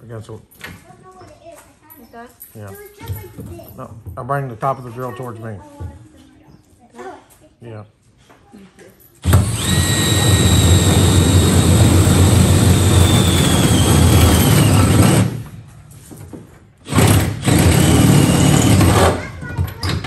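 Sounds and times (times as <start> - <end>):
cordless drill boring: 9.2 - 15.4, 16.9 - 19.2.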